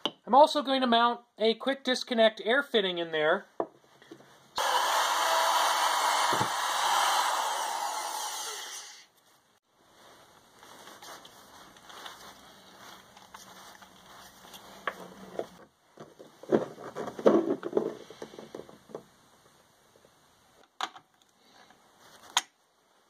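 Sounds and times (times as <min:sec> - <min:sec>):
plastic and metal clattering: 0:15.4 - 0:19.0.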